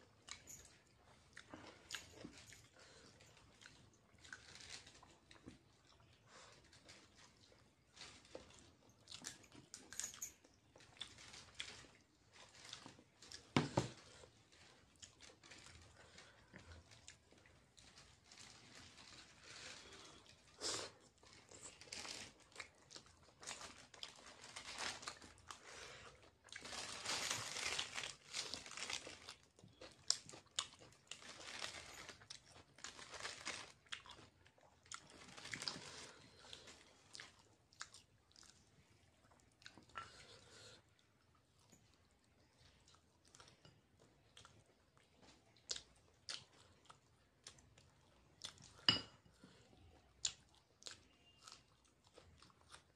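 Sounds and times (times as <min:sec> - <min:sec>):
man chewing food: 0:00.0 - 0:26.8, 0:27.6 - 0:52.9.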